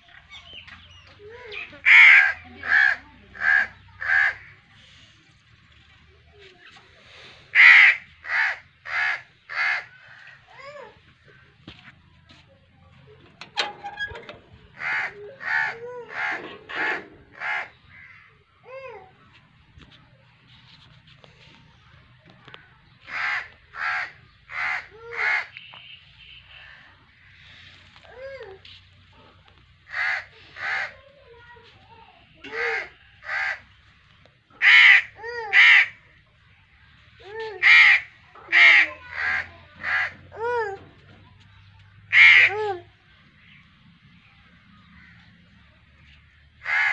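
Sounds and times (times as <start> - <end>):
crow cawing: 14.8 - 18.3, 23.1 - 25.5, 29.9 - 31.0.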